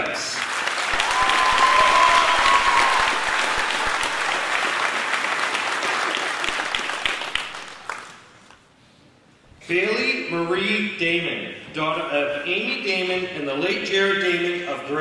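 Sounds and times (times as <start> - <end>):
audience applauding: 0.0 - 8.5
crowd holding high note: 0.9 - 7.7.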